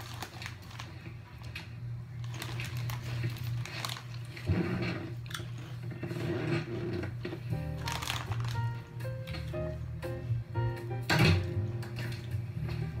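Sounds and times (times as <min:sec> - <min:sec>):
plastic snack bag crinkling: 0:00.0 - 0:04.5, 0:05.1 - 0:06.0, 0:07.7 - 0:09.5
steady low hum: 0:00.0 - 0:13.0.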